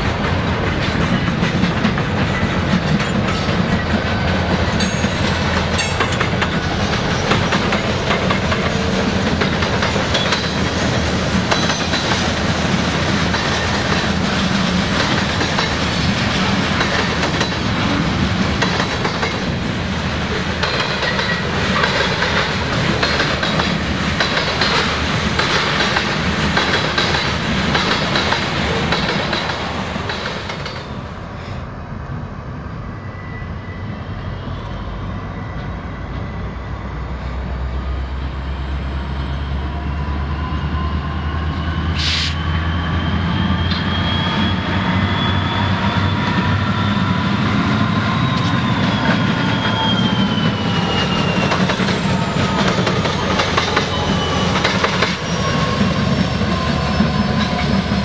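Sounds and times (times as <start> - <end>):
locomotive engines droning: 0.0 - 58.0
short hiss: 42.0 - 42.4.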